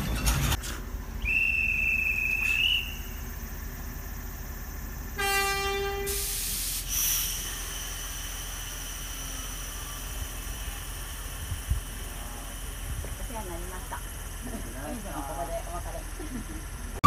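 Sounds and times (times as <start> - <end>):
hand whistle long note: 1.2 - 3.1
locomotive whistle: 1.2 - 3.2, 5.2 - 6.5.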